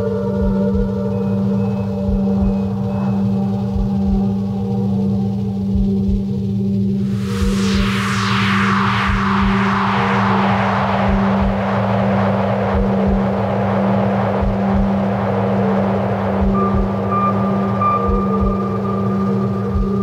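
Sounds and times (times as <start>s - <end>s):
low synth drone: 0.0s - 20.0s
high held tone: 7.0s - 20.0s
falling whoosh: 7.1s - 17.6s
deep pulsing thuds: 12.7s - 13.4s, 14.4s - 15.1s, 16.4s - 17.0s.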